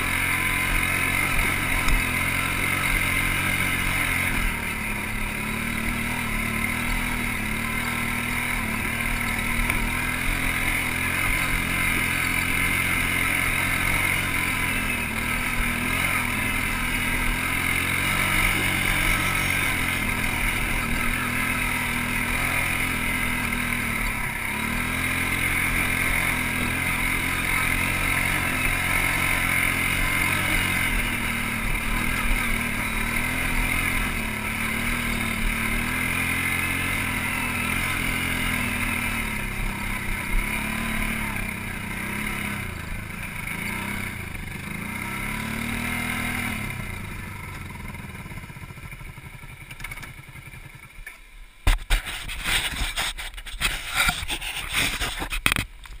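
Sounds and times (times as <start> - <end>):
atv engine revving: 0.0 - 55.7
knocks and scrapes at microphone: 51.6 - 56.0.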